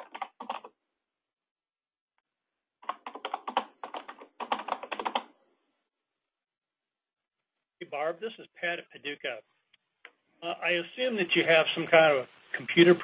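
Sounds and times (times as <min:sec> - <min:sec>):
keyboard typing: 0:00.0 - 0:00.8, 0:02.8 - 0:05.4.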